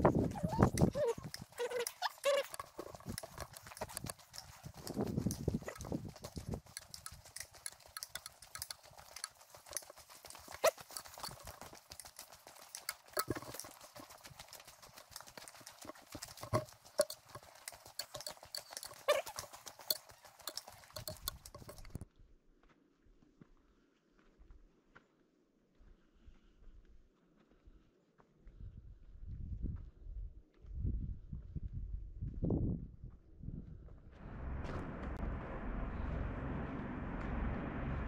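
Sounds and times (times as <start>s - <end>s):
footsteps on rocky dirt trail: 0.0s - 22.0s
low rush: 34.2s - 38.0s.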